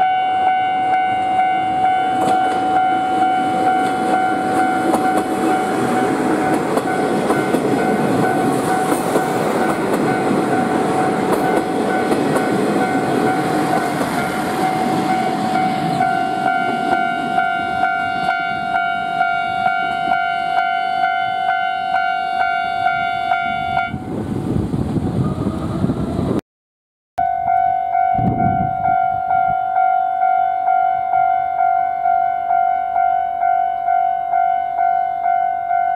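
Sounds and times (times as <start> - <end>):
level crossing alarm ringing: 0.0 - 24.0, 27.2 - 35.9
train wheels rumbling on rails: 0.6 - 20.4, 22.8 - 26.4.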